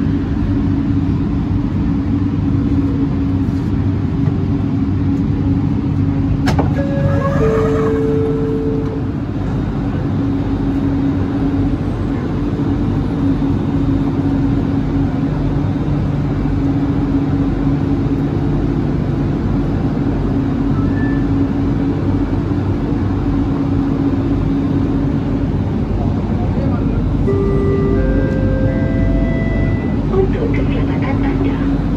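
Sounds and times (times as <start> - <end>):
train equipment humming: 0.0 - 31.9.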